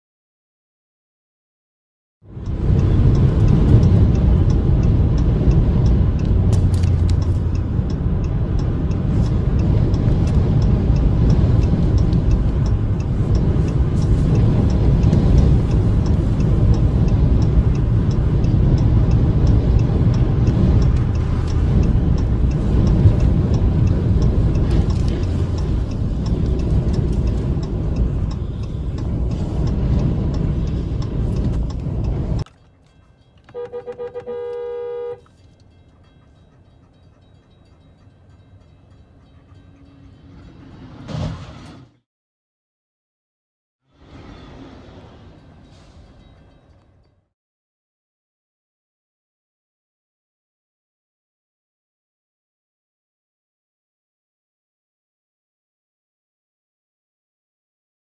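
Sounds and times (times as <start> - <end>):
wind and road noise: 2.2 - 42.0, 43.8 - 47.3.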